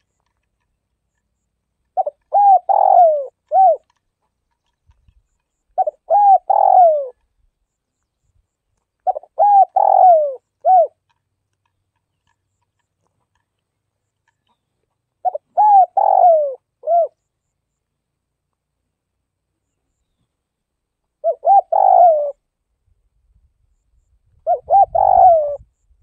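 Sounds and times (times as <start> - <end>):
dove cooing: 1.9 - 4.0, 5.7 - 7.2, 9.0 - 11.1, 15.2 - 17.2, 21.2 - 22.4, 24.4 - 25.7.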